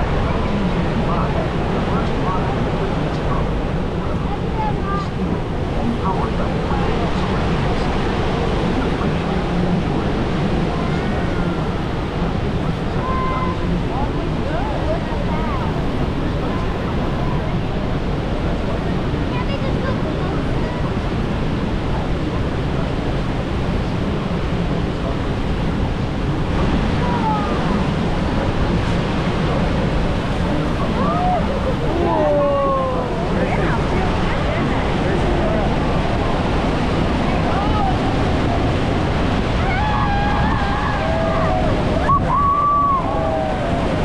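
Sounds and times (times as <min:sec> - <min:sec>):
rushing water: 0:00.0 - 0:44.0
wind buffeting microphone: 0:00.0 - 0:44.0
faint voices calling out: 0:26.4 - 0:44.0.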